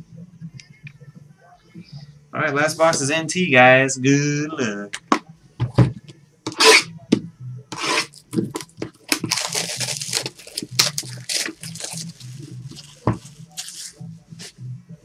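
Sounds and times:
plastic wrap crinkling: 0:08.0 - 0:14.0.

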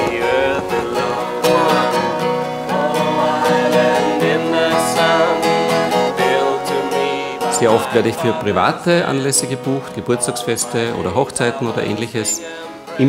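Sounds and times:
people singing: 0:00.0 - 0:13.0
strummed acoustic guitar: 0:00.0 - 0:13.0.

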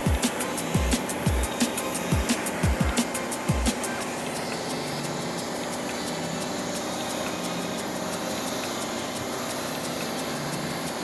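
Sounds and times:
motor running: 0:00.0 - 0:11.0
spray gun hissing: 0:00.0 - 0:11.0.

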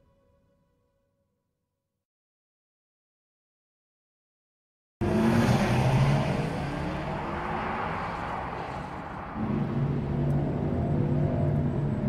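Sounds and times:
electric car drive hum: 0:06.4 - 0:12.0.

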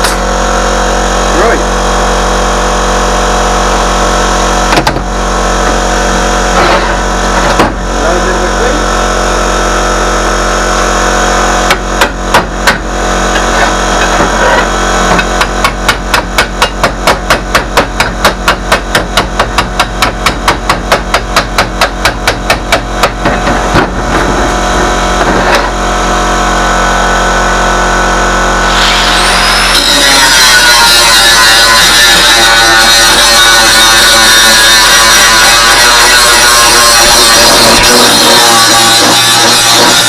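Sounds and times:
steady hum: 0:00.0 - 0:40.0
hammer striking steel: 0:11.7 - 0:24.3.

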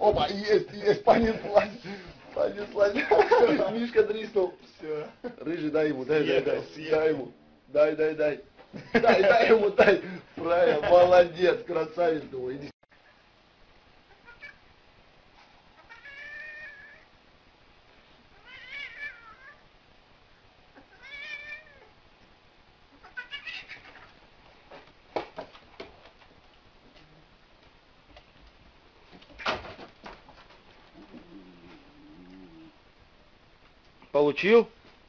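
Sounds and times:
cat yowling: 0:14.1 - 0:14.6, 0:15.8 - 0:17.1, 0:18.4 - 0:19.6, 0:20.8 - 0:21.9, 0:23.0 - 0:24.1.

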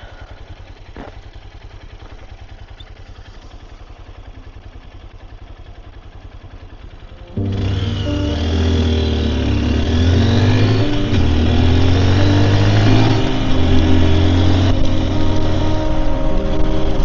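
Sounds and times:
motorcycle engine idling: 0:00.0 - 0:17.0
music with held tones: 0:07.1 - 0:17.0.

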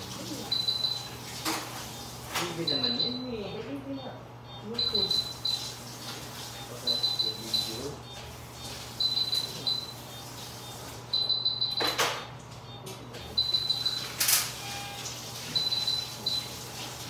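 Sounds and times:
medical equipment beeping: 0:00.0 - 0:17.0.

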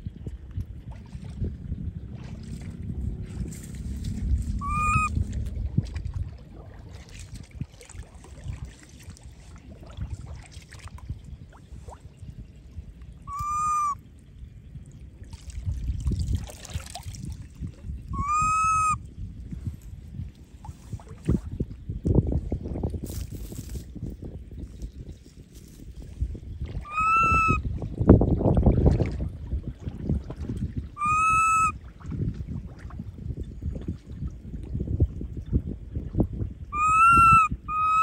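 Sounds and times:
wind noise: 0:00.0 - 0:38.0
water splashing: 0:02.1 - 0:12.1
baby monkey crying: 0:04.6 - 0:05.1, 0:13.3 - 0:14.0, 0:18.2 - 0:19.0, 0:26.9 - 0:27.6, 0:31.0 - 0:31.7, 0:36.7 - 0:38.0.

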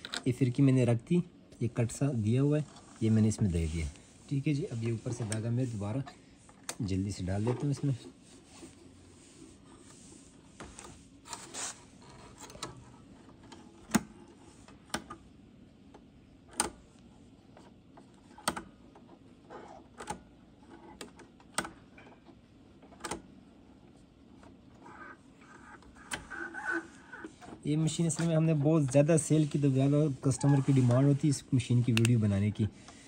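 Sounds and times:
soft rustle: 0:01.7 - 0:06.5, 0:24.9 - 0:33.0.

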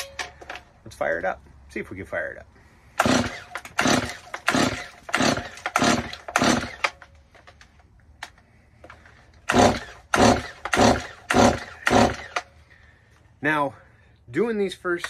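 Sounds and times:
chainsaw engine turning over: 0:03.0 - 0:07.6, 0:08.9 - 0:12.5
chainsaw recoil starter pulls: 0:03.0 - 0:12.5.

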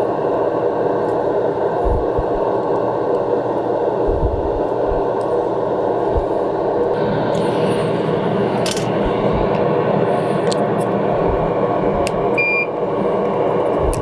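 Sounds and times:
extractor fan drone: 0:00.0 - 0:14.0
high electronic beep: 0:12.4 - 0:12.7.

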